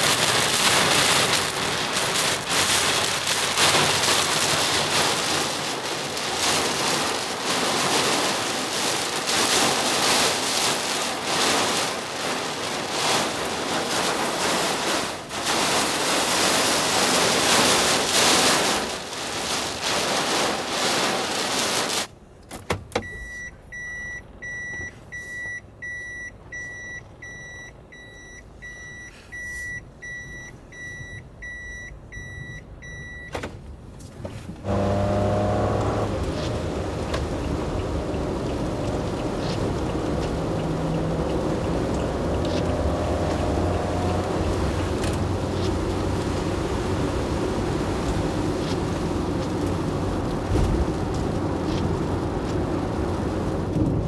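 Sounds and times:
heavy rain on vehicle roof: 0.0 - 22.2, 23.0 - 54.0
electronic warning chime beeping: 23.1 - 33.3.

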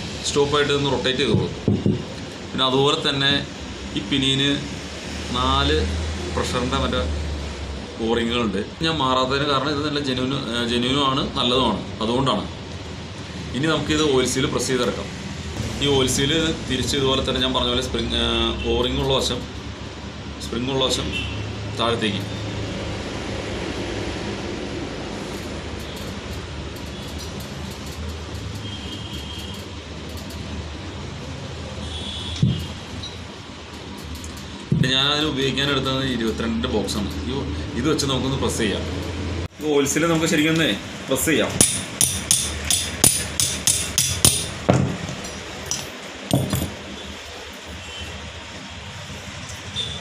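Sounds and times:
steady low hum: 14.5 - 18.6
hammer tapping metal socket: 41.6 - 46.8
housing set down on table thump: 44.7 - 45.2.

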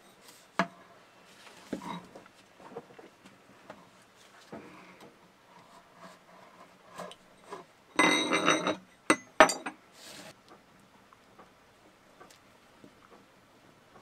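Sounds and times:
metal tool clattering on wooden table: 8.0 - 9.8.

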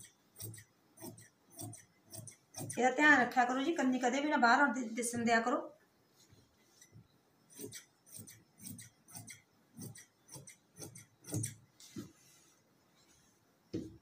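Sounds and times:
scissors snipping cloth: 0.0 - 2.8.

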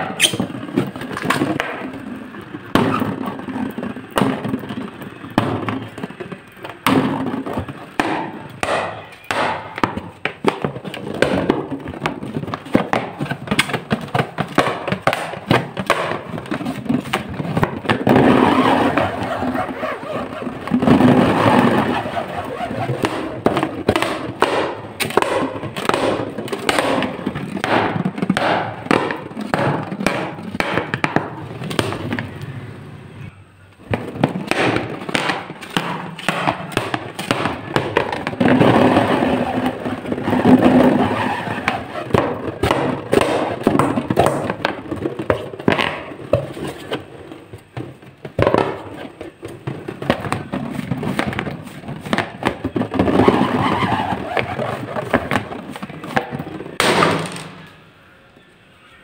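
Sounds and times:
rubbery balloon squeaks: 0.0 - 2.0, 2.7 - 32.5, 34.0 - 56.9.

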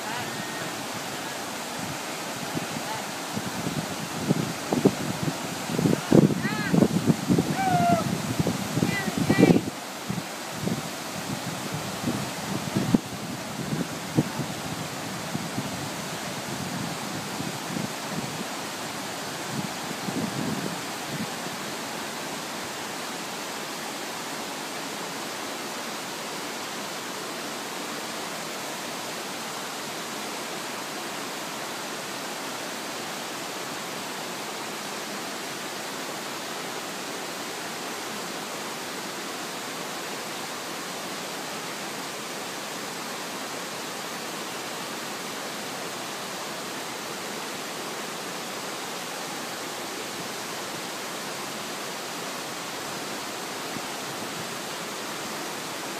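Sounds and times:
river rushing over rocks: 0.0 - 55.9.

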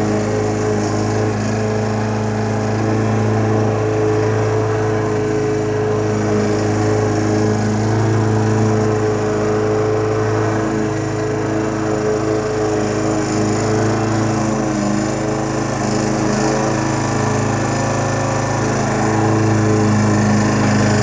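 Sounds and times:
lawn mower engine running: 0.0 - 21.0.

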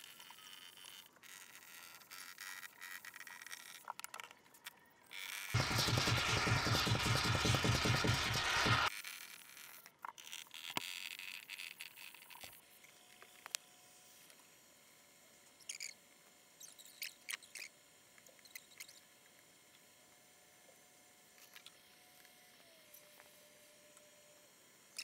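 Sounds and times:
foam gun hissing: 5.6 - 8.9.

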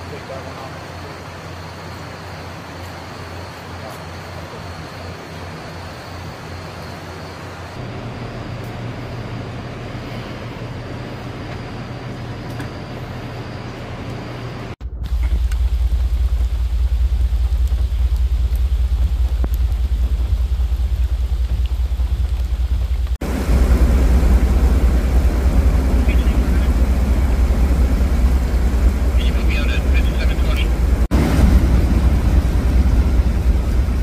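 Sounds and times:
vehicle engine rumble: 0.0 - 34.0
rain falling: 15.1 - 34.0.

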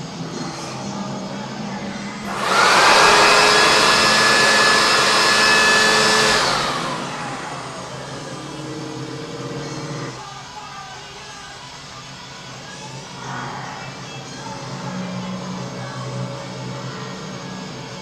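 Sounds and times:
electric leaf blower: 2.2 - 10.2.

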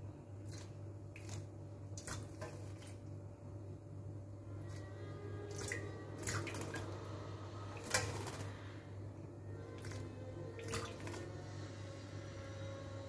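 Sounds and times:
steady low hum: 0.0 - 13.0
bird splashing in water: 0.4 - 3.0, 5.5 - 7.0, 7.8 - 8.6, 10.6 - 11.3.

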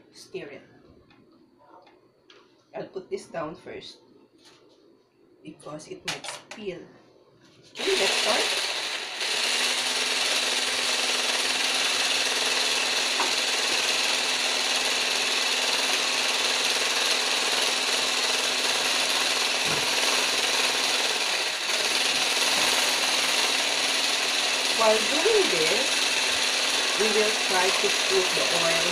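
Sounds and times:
stick blender whisking in glass bowl: 7.8 - 28.9.

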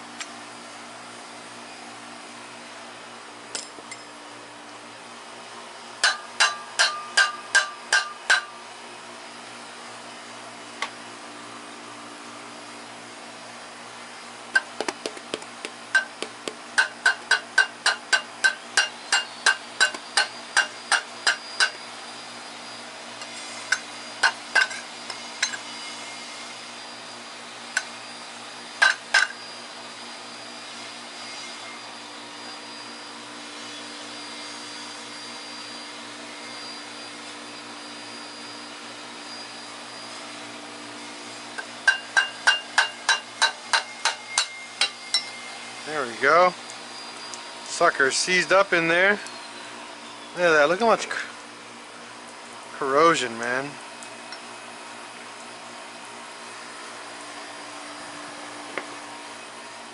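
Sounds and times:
hammer tapping on metal: 6.0 - 8.5, 14.6 - 21.8, 41.8 - 45.3.

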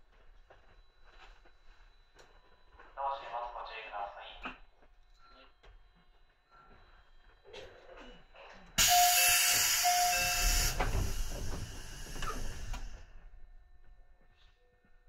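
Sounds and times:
thin whistling tone: 8.8 - 10.9
compressed air hissing: 8.8 - 13.0.

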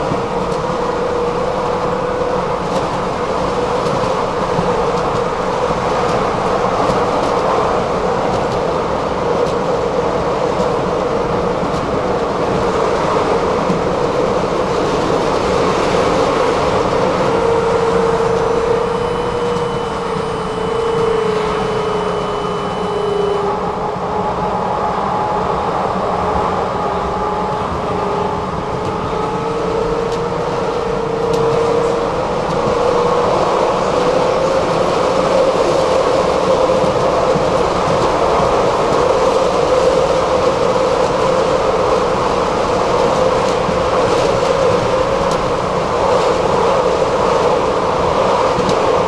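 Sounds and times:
tram motor hum: 0.0 - 49.0
tram wheels rumbling on rail: 0.0 - 49.0
thin high whine: 16.2 - 25.3.

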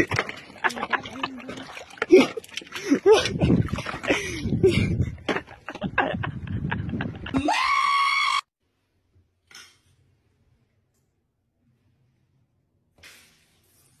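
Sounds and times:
wet mud squelching: 0.0 - 4.6.

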